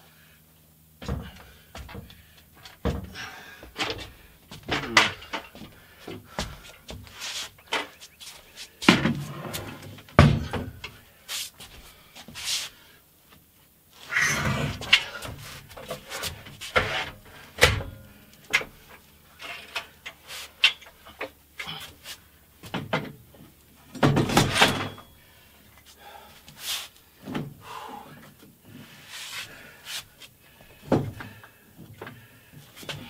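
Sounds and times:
metal clanks and rattles: 0:01.0 - 0:05.7, 0:23.9 - 0:25.2.

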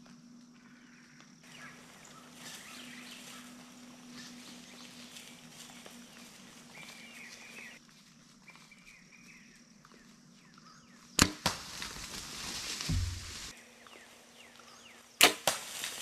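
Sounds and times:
arrow striking animal: 0:11.2 - 0:13.5, 0:15.2 - 0:15.9.

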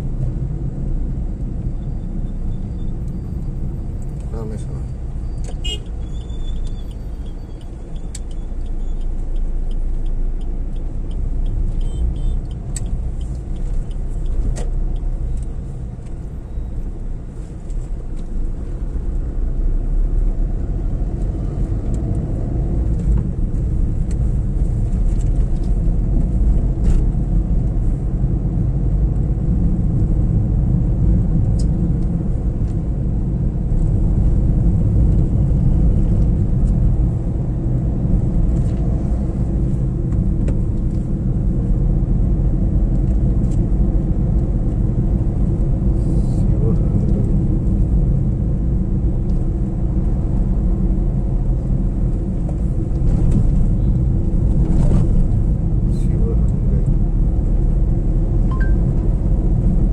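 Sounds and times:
car road and engine noise: 0:00.0 - 0:59.9
faint regular ticking: 0:07.6 - 0:15.5.

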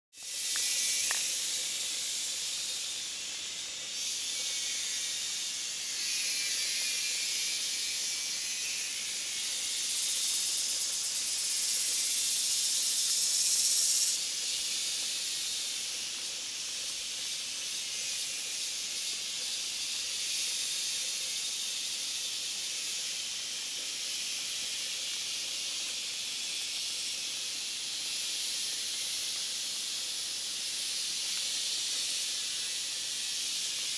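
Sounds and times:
cicadas buzzing: 0:00.2 - 0:33.9.

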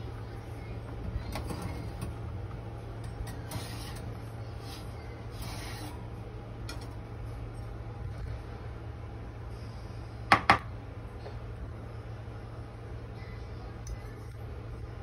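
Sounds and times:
steady low hum: 0:00.0 - 0:15.0
rubbing and scraping on oven: 0:03.2 - 0:06.2.

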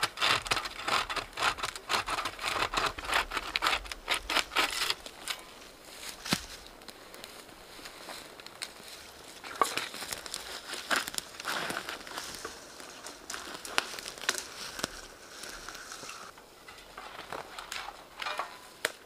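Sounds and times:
dry branches crackling and rustling: 0:00.0 - 0:19.0
twigs snapping: 0:06.1 - 0:07.4, 0:08.2 - 0:16.3.

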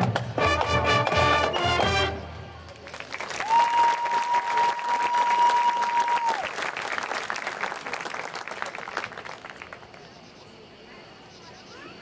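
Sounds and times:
stadium crowd applauding and cheering: 0:02.5 - 0:10.0.

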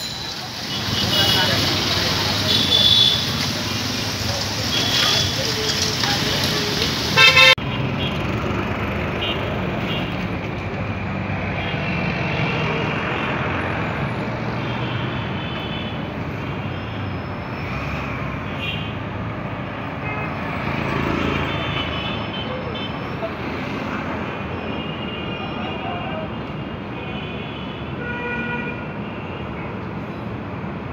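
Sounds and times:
road traffic rumble: 0:00.0 - 0:30.9
loud horn blast: 0:07.2 - 0:08.1.

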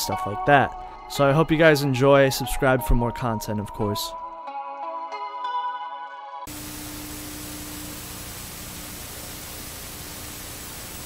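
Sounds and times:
soft ambient music: 0:00.0 - 0:06.5
television static hiss: 0:06.5 - 0:11.0.

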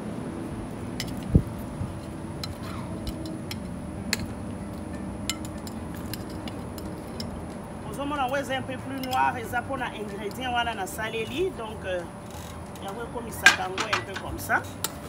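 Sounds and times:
metal spoon clinking on dishes: 0:13.4 - 0:14.4.

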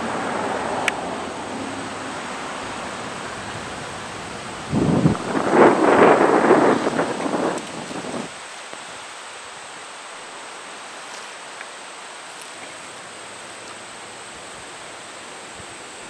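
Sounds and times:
wind gust rushing: 0:00.0 - 0:09.0
steady hiss of wind: 0:00.0 - 0:16.0.

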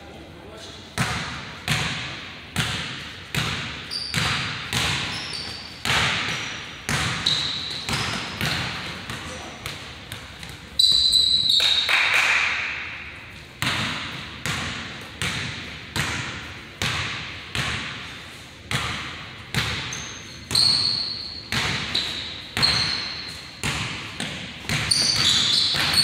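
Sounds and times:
basketball bouncing on hardwood floor: 0:01.0 - 0:11.1, 0:13.6 - 0:18.0, 0:18.7 - 0:26.0
sneaker squeaks: 0:03.6 - 0:11.9, 0:19.5 - 0:26.0.

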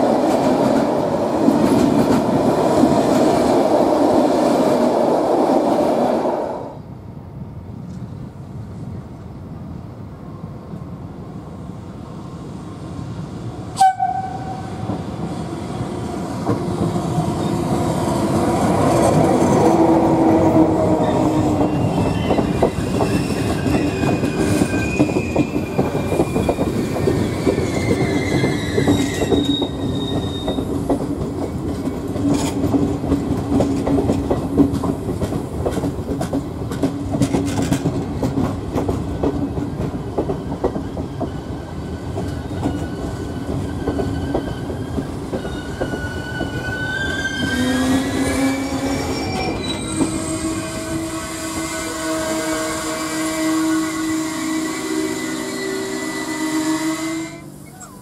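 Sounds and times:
train noise: 0:00.0 - 0:58.0
wheels squealing: 0:21.0 - 0:30.7, 0:40.8 - 0:51.9
train wheels clacking over rail joints: 0:21.5 - 0:46.7.

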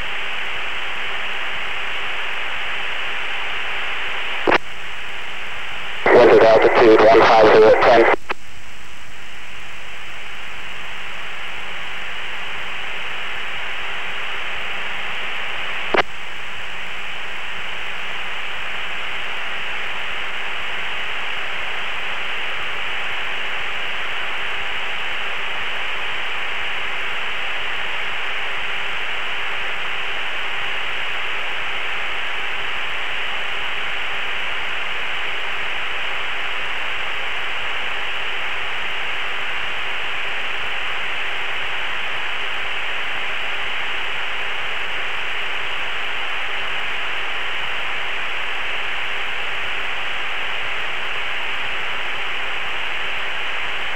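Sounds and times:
radio static hiss: 0:00.0 - 0:53.9
short radio click: 0:04.4 - 0:04.7, 0:06.1 - 0:08.4, 0:15.9 - 0:16.1.

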